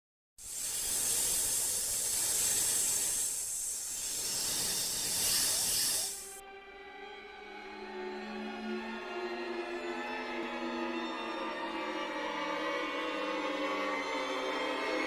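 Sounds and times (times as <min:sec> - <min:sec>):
snake hiss: 0:00.4 - 0:06.4
music: 0:04.8 - 0:15.0.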